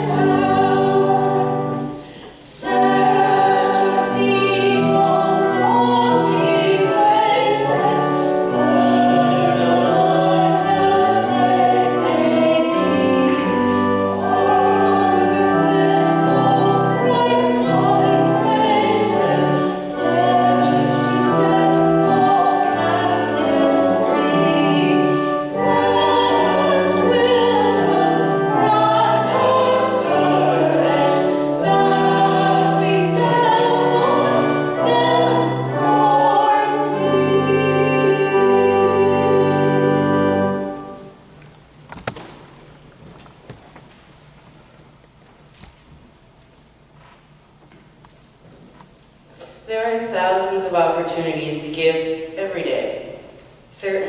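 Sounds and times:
voices singing a hymn: 0.0 - 41.2
organ accompaniment: 0.0 - 43.3.

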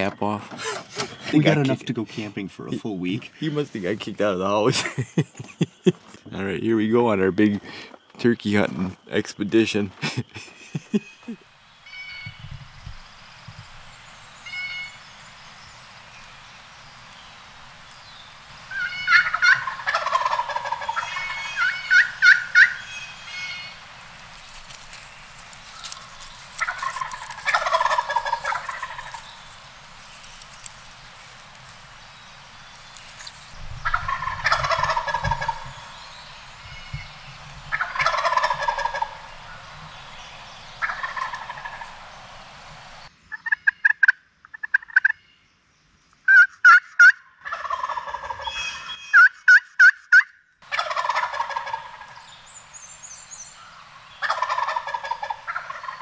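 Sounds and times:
sharp yelping calls: 18.7 - 23.8, 25.7 - 30.3, 33.8 - 35.9, 37.7 - 39.8, 40.8 - 41.9, 46.2 - 52.2
turkey gobbling: 18.7 - 23.8, 25.7 - 29.6, 33.8 - 36.0, 37.7 - 40.2, 40.8 - 42.1, 43.3 - 45.2, 46.3 - 52.3, 54.2 - 56.0.

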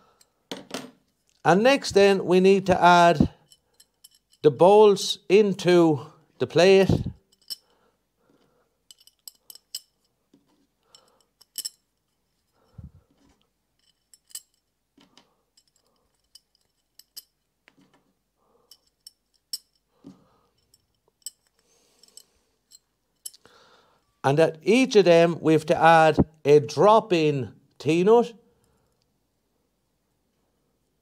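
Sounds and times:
metal bolts clinking: 3.3 - 4.5, 7.0 - 7.8, 8.9 - 10.2, 10.8 - 17.9, 18.6 - 23.5.

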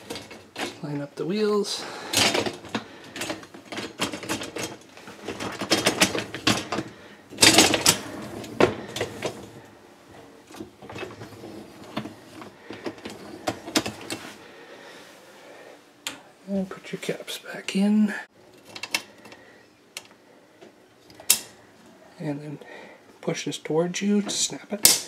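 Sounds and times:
wire dishwasher rack rattling: 1.8 - 9.6.

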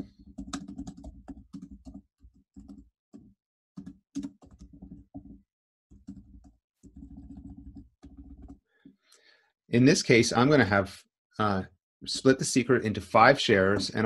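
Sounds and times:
computer keyboard typing: 0.0 - 8.6.

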